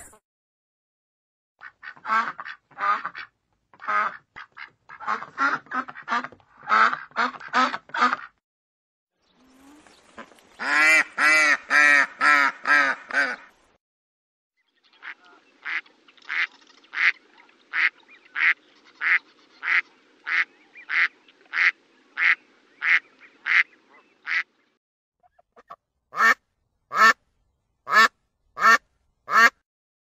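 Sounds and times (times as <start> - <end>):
duck quacking: 1.6 - 8.4, 10.2 - 13.5, 15.0 - 24.5, 25.2 - 27.2, 27.9 - 29.6.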